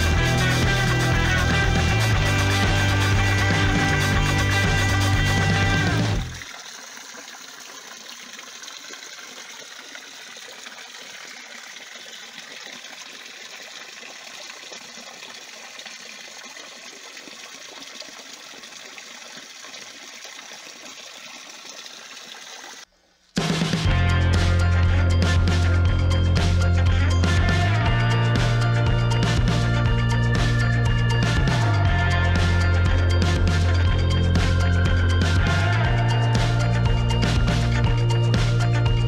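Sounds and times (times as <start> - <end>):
water trickling: 0.0 - 22.9.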